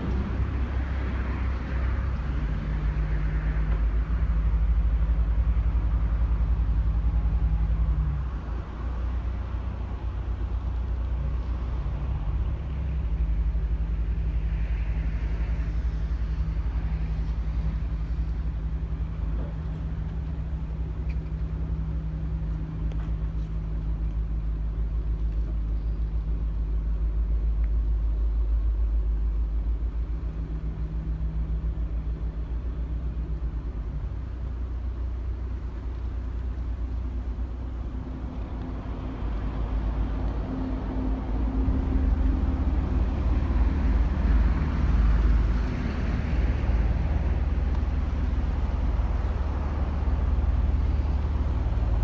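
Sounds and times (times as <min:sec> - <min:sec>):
boat diesel engine running: 0:00.0 - 0:52.0.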